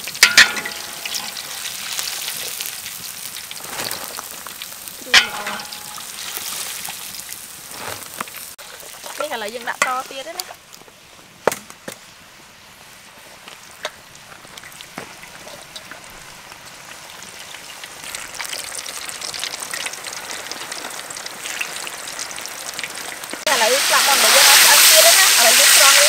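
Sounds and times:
chicken wings deep-frying in oil: 0:00.0 - 0:26.0.

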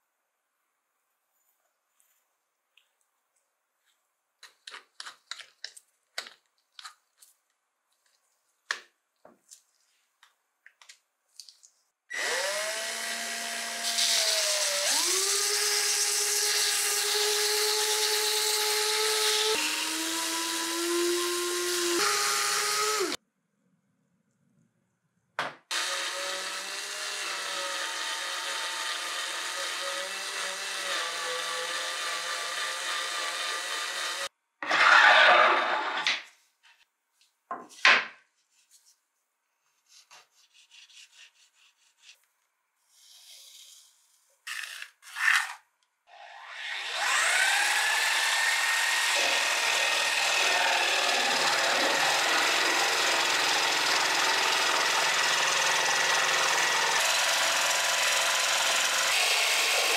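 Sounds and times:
sanding wood: 0:39.9 - 0:42.2.

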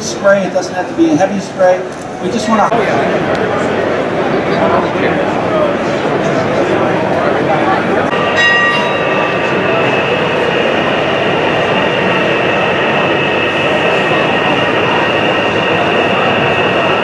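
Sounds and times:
background chatter: 0:00.0 - 0:17.0
high whine: 0:05.9 - 0:17.0.

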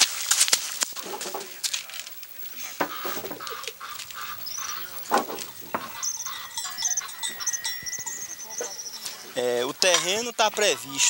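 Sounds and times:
iron bars striking hard ground: 0:00.9 - 0:01.9, 0:02.7 - 0:11.0
small birds chirping: 0:02.1 - 0:11.0
livestock calling: 0:02.5 - 0:11.0.

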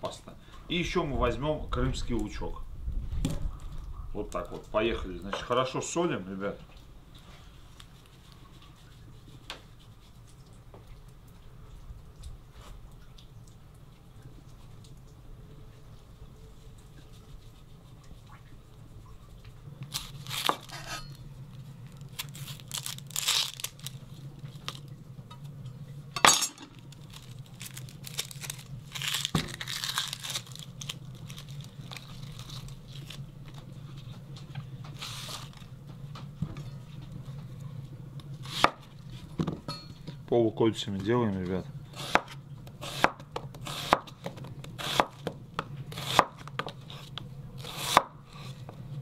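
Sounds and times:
steady low hum: 0:00.0 - 0:49.0
crinkling and rustling: 0:19.3 - 0:25.6, 0:26.6 - 0:37.7.

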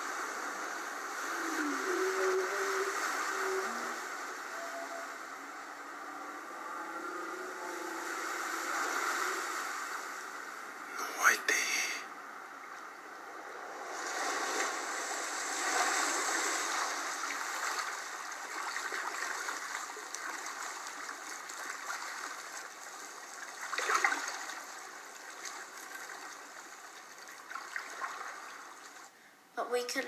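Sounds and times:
rushing bubbling water: 0:13.7 - 0:29.1.

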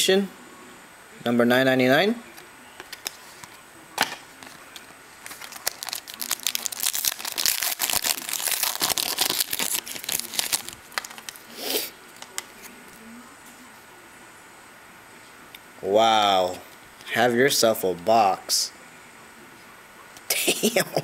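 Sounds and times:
foil wrapper crinkling and tearing: 0:05.2 - 0:11.5.

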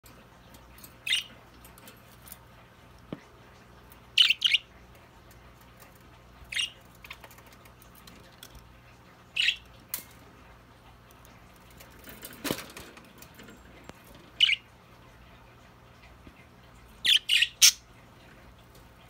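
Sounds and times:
budgerigars chirping: 0:04.2 - 0:04.7, 0:06.5 - 0:06.8, 0:09.4 - 0:09.6, 0:14.4 - 0:14.6, 0:17.0 - 0:17.8.

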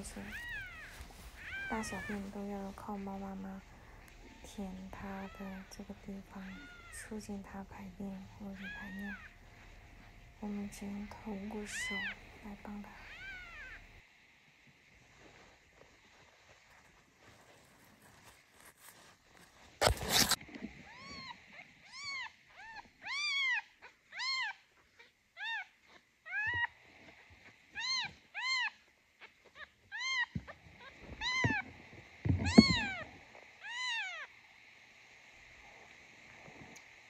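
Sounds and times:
kitten mewing: 0:00.0 - 0:02.3, 0:03.7 - 0:07.6, 0:11.6 - 0:14.0, 0:32.4 - 0:33.0
handling scuffing: 0:00.2 - 0:02.3.

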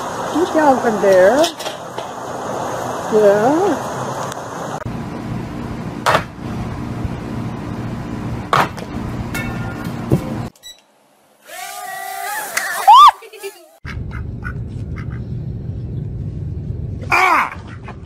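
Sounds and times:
steady low hum: 0:02.4 - 0:10.5, 0:13.8 - 0:18.0.

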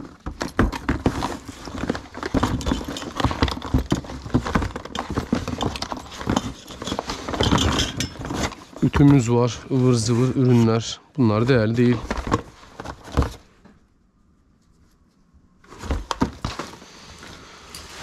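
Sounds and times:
tools clattering in a box: 0:00.0 - 0:09.3.

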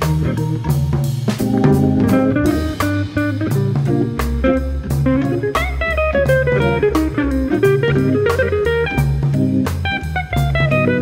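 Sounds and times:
blues-jazz guitar with bass and drums: 0:00.0 - 0:11.0.

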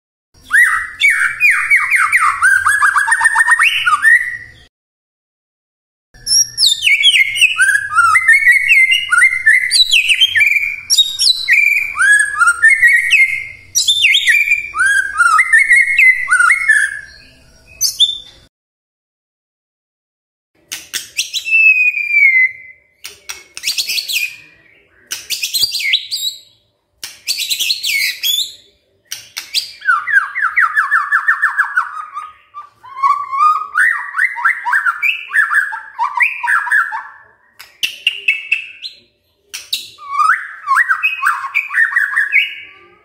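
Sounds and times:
bird singing: 0:00.4 - 0:04.7, 0:06.2 - 0:18.5, 0:27.3 - 0:43.0.

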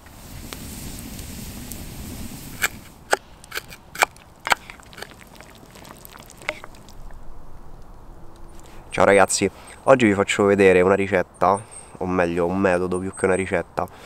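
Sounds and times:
burning wood popping: 0:00.0 - 0:09.8
campfire crackling: 0:00.0 - 0:10.8.

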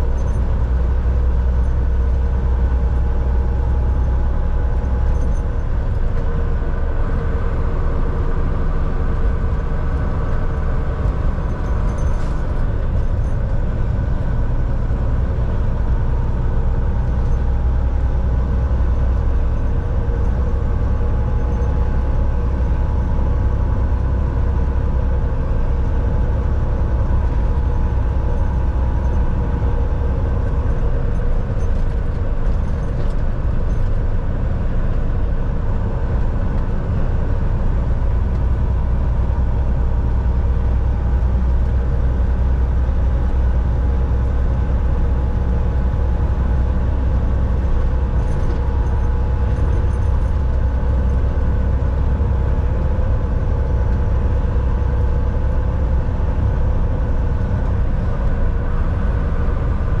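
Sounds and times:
road and tyre noise: 0:00.0 - 1:00.0
truck engine drone: 0:00.0 - 1:00.0.

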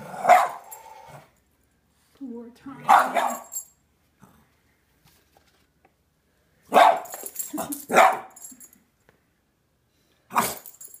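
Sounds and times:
dog barking: 0:00.2 - 0:00.6, 0:02.9 - 0:03.5, 0:06.7 - 0:07.1, 0:07.9 - 0:08.4, 0:10.3 - 0:10.6.

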